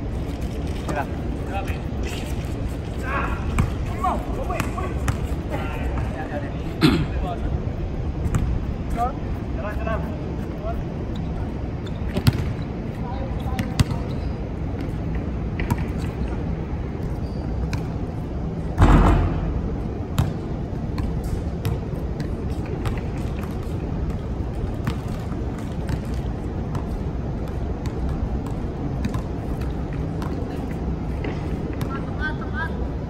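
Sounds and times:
basketball bouncing on hard court: 13.6 - 14.0, 20.2 - 20.4.

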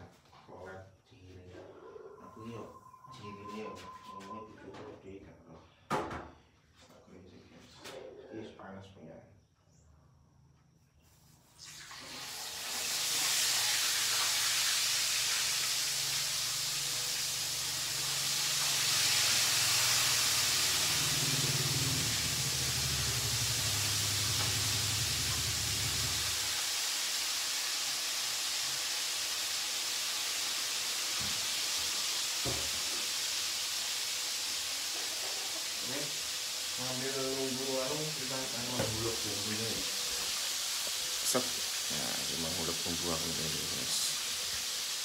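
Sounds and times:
fish sizzling in hot oil: 11.6 - 45.0.

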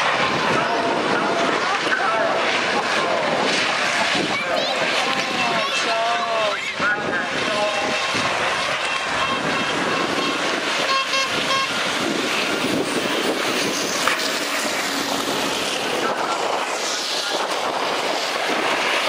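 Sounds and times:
buses racing past: 0.0 - 19.0
quick horn toots: 8.8 - 12.4.

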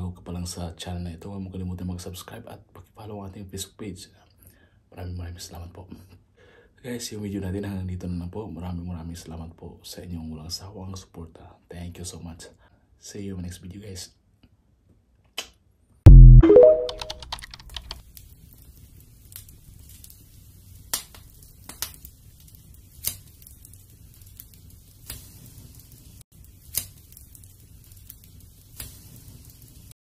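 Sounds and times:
short ringing tone: 16.1 - 17.2
wood fire crackling and popping: 18.0 - 30.0.

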